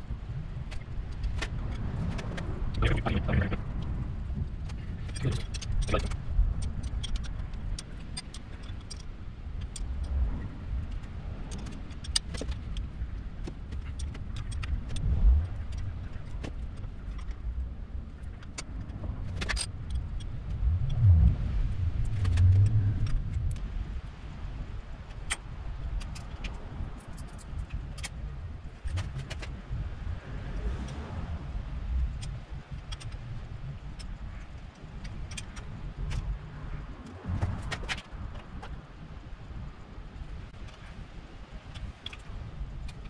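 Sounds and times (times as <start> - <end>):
low rumble: 0.0 - 7.8, 9.2 - 25.0.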